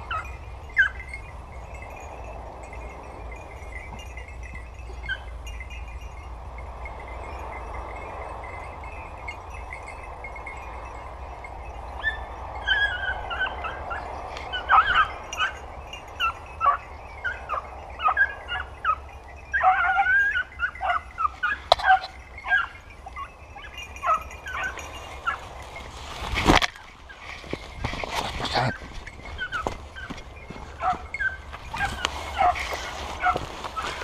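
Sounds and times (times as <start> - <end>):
puppies yelping and baying: 0.0 - 1.3, 4.9 - 5.5, 11.8 - 34.0.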